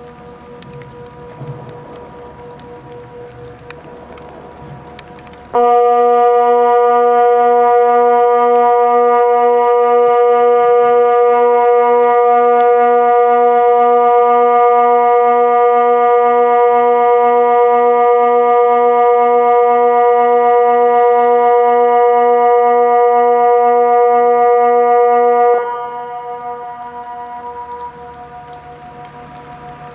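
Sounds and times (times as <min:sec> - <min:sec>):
siren steady low tone: 0:05.6 - 0:29.9.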